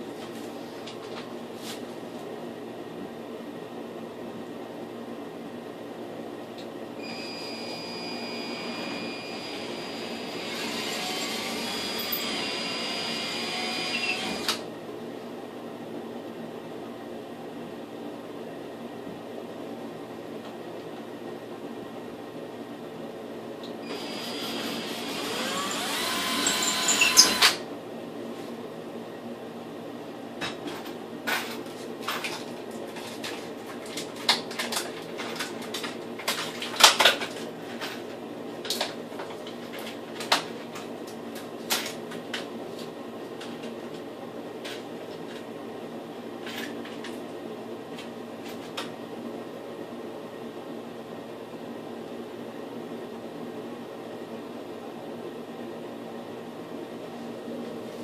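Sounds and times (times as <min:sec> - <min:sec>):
steady background hum: 0:00.0 - 0:58.0
small power tool running: 0:07.6 - 0:14.6, 0:23.9 - 0:27.6.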